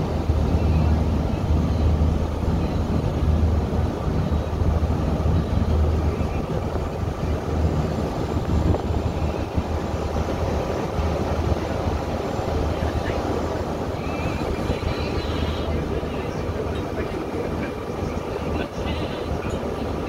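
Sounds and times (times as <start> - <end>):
ship engine drone: 0.0 - 20.0
water rushing along hull: 0.0 - 20.0.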